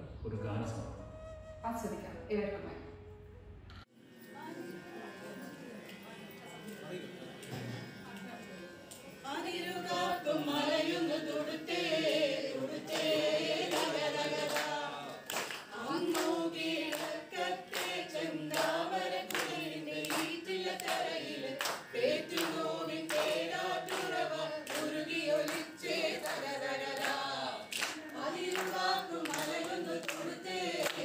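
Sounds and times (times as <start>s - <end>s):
group of voices singing: 9.2s - 31.0s
hands clapping a beat: 12.9s - 31.0s.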